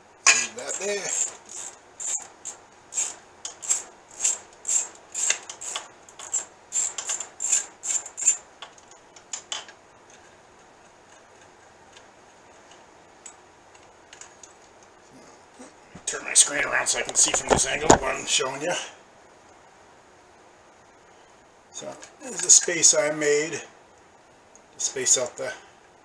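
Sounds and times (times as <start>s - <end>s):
faint high hum: 0.0s - 26.0s
hand tool clicking on metal: 0.3s - 8.4s.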